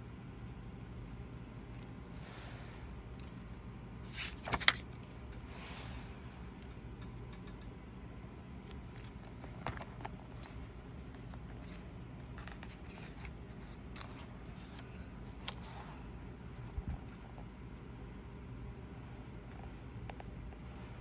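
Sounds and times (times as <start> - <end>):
notebook pages turning: 4.0 - 5.2, 8.7 - 10.6, 11.2 - 15.9
crisp paper flicks and taps: 4.1 - 5.0.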